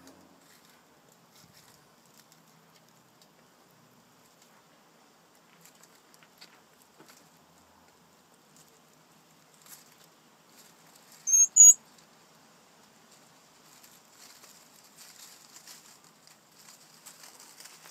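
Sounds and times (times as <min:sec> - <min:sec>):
soft ticking and rustling: 0:00.0 - 0:11.2, 0:12.8 - 0:17.9
high chirps: 0:11.3 - 0:11.8.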